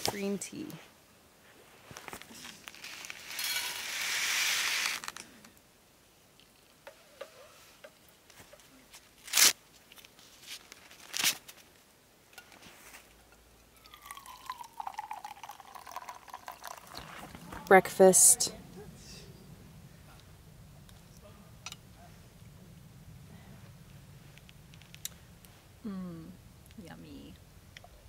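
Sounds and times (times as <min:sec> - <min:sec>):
paper packet ripping: 0:02.7 - 0:05.2, 0:09.2 - 0:09.6, 0:10.6 - 0:11.6
water pouring into mug: 0:13.8 - 0:17.4.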